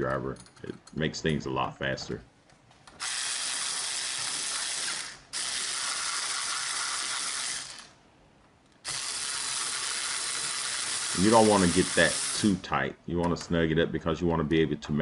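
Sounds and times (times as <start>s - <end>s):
electric screwdriver driving screws: 2.9s - 8.0s, 8.8s - 12.6s.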